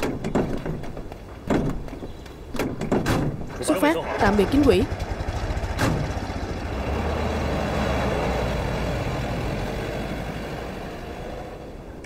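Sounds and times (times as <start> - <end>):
jeep engine driving off: 3.8 - 12.0.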